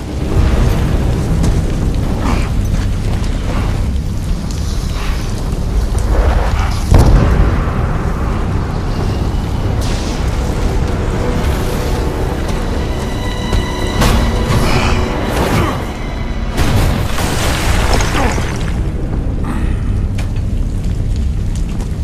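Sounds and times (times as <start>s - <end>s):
deep rumbling: 0.0s - 22.0s
film music: 0.0s - 22.0s
booming hits: 6.3s - 10.6s.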